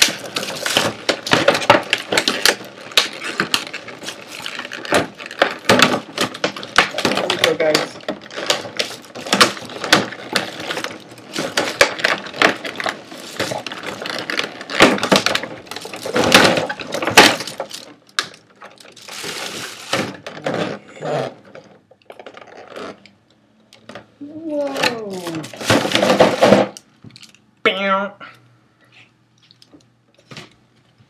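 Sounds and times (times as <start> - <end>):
plastic packaging crinkling: 0.0 - 21.3, 24.5 - 27.4.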